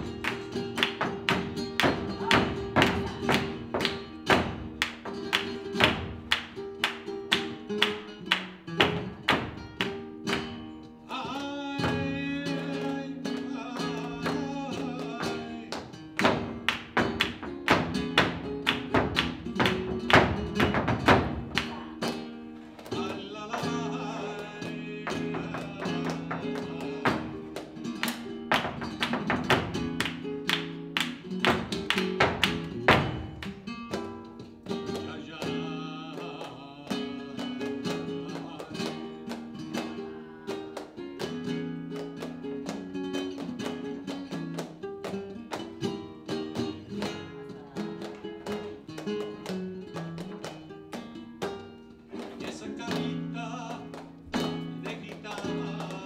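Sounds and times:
rhythmic hand-clapping: 0.0s - 56.0s.

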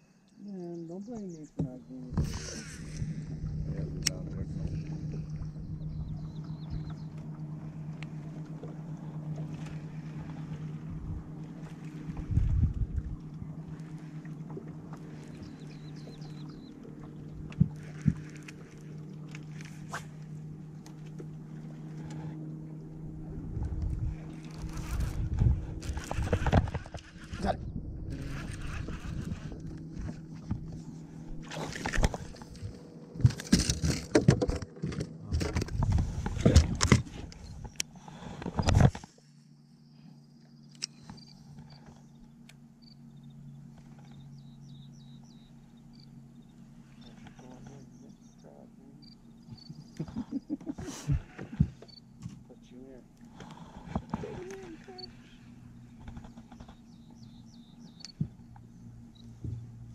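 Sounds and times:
boat motor humming: 0.0s - 59.9s
low rumble: 0.7s - 39.0s.

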